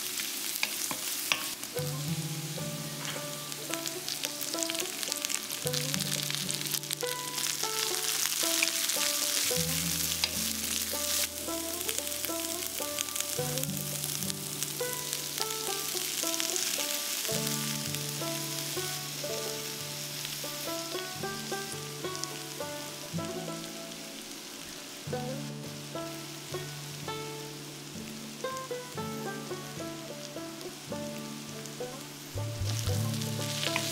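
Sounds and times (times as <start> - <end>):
vegetables sizzling in a wok: 0.0 - 33.9
light plucked background music: 0.6 - 33.9
wooden spatula scraping metal: 2.9 - 3.4.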